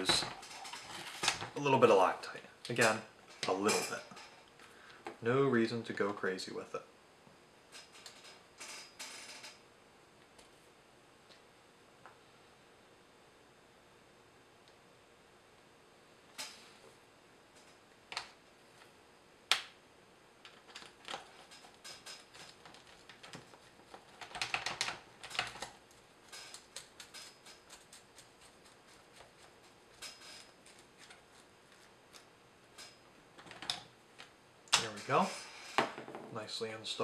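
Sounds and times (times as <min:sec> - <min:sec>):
small parts clicking and tapping: 0:20.4 - 0:34.9.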